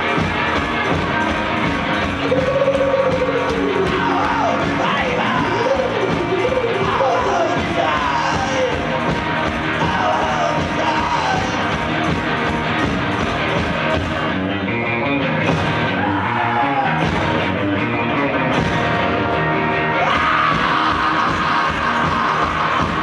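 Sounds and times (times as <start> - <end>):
steady drum beat: 0.0 - 14.5, 15.3 - 17.8, 18.4 - 19.2, 20.0 - 23.0
electric guitars: 0.0 - 23.0
person singing: 2.2 - 9.1, 9.8 - 11.8, 19.9 - 23.0.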